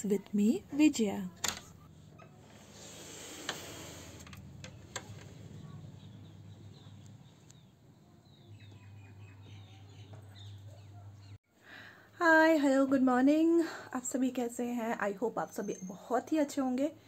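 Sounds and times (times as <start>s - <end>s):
faint birds chirping: 0.0s - 11.4s, 15.0s - 16.9s.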